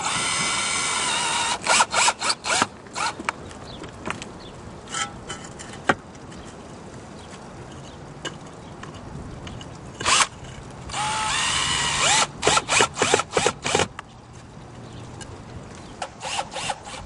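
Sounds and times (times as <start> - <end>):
cordless drill driving screw: 0.0 - 3.2, 10.9 - 13.9, 16.0 - 17.0.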